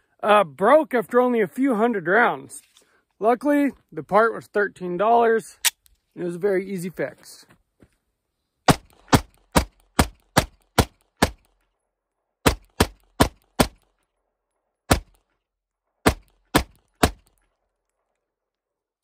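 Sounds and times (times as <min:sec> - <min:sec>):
pistol gunshots: 0:08.7 - 0:11.5, 0:12.4 - 0:13.9, 0:14.9 - 0:15.3, 0:16.0 - 0:17.4.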